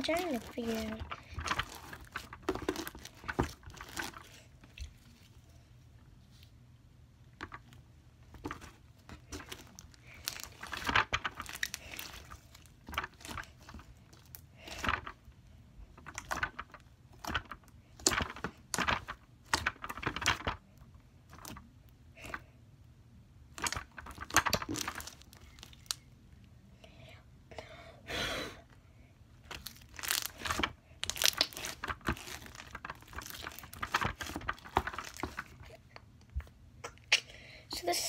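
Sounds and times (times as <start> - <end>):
bead slime crackling and popping: 0.0 - 4.9, 8.4 - 15.2, 23.5 - 26.0, 29.4 - 35.7.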